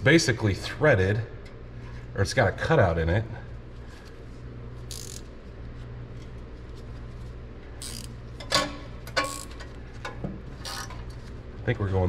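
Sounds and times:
metal tool scraping: 7.8s - 8.1s, 10.6s - 11.0s.

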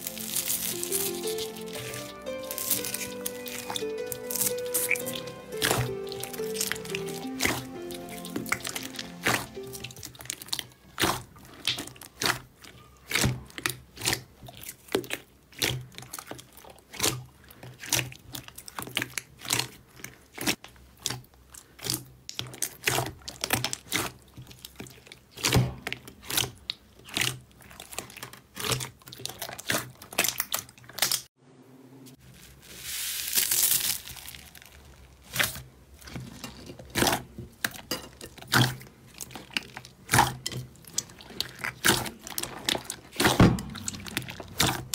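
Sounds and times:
slime clicking and popping: 0.0s - 17.2s.

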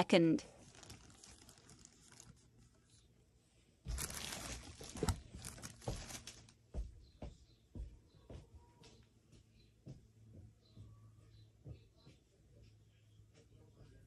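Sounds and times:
rustling and crinkling: 0.4s - 7.0s
knocks and taps: 6.7s - 12.3s.

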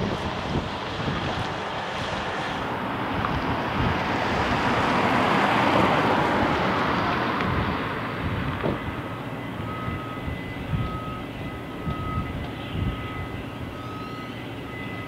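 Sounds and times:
wind on microphone: 0.0s - 9.1s, 9.7s - 13.7s
passing vehicle rushing: 0.0s - 12.2s.

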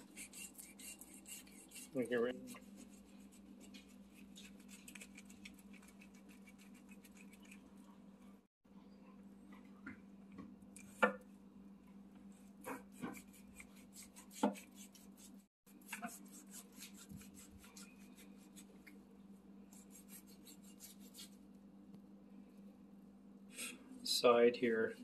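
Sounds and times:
knife slicing and scraping fat: 0.0s - 7.7s, 12.7s - 18.7s, 19.8s - 21.4s.

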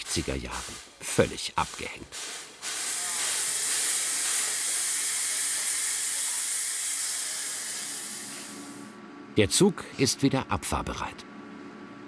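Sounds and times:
steam hissing: 0.0s - 8.9s.

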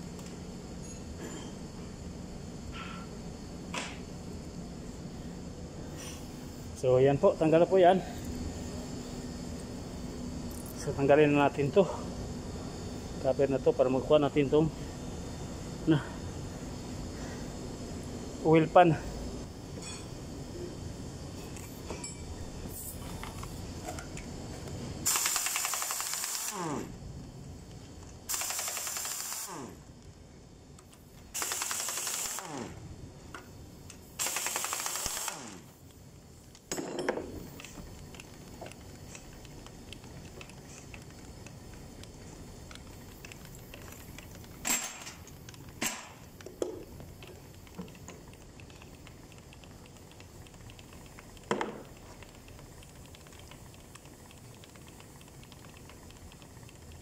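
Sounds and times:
sharp metal clinks: 19.8s - 20.1s
air impact wrench hammering: 25.0s - 26.9s, 28.3s - 29.7s, 31.4s - 32.7s, 34.2s - 35.6s, 44.6s - 45.2s, 45.8s - 46.8s.

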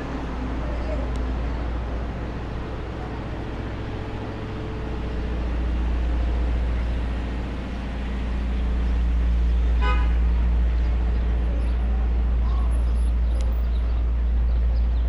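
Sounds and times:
city street rumble: 0.0s - 15.0s
vehicle horn toot: 9.8s - 10.2s.

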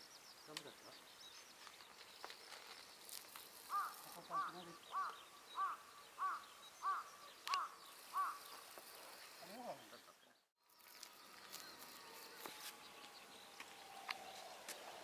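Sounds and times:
crow cawing: 3.6s - 8.6s.

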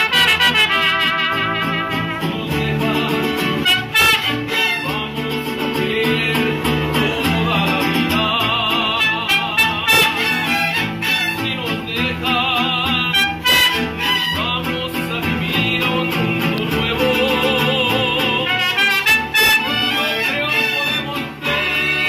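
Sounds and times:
trumpets: 0.0s - 2.4s, 3.5s - 5.0s, 9.0s - 11.6s, 13.0s - 14.5s, 18.4s - 22.0s
bass line: 0.0s - 22.0s
strummed guitars: 0.0s - 22.0s.

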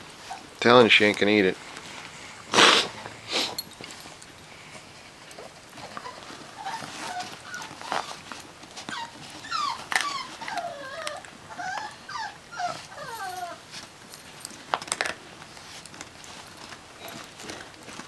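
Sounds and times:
dog whimpering: 0.2s - 0.5s, 5.8s - 13.7s.

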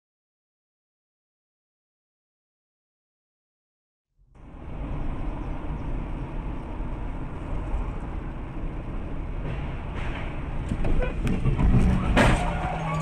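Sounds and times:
car road and engine rumble: 4.3s - 13.0s.

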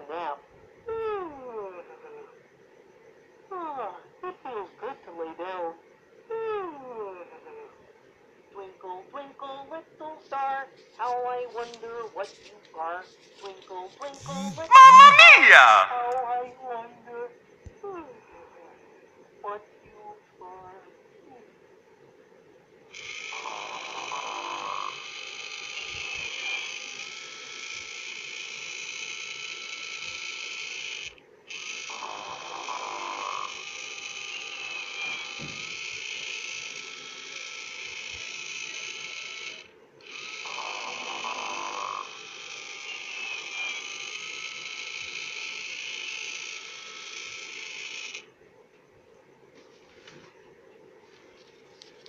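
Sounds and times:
toy snoring through speaker: 23.2s - 27.2s, 31.7s - 36.5s, 38.3s - 44.3s.

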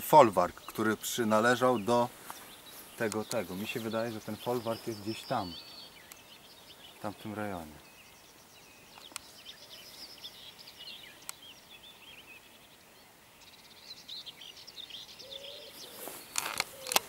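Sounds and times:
songbirds chirping and trilling: 0.0s - 17.0s
sharp clicks: 16.3s - 17.0s.

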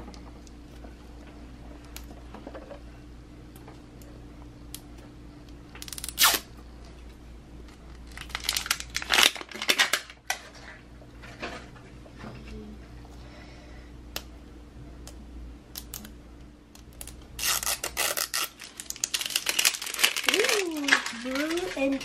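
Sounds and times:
plastic wrapping crinkling and tearing: 5.8s - 6.5s, 7.7s - 10.8s, 17.0s - 22.0s.

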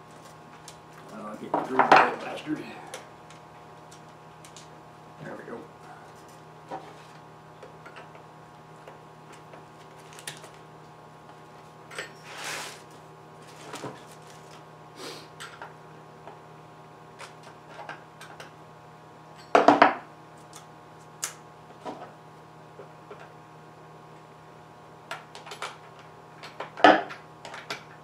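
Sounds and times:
short scrape: 12.2s - 12.9s.

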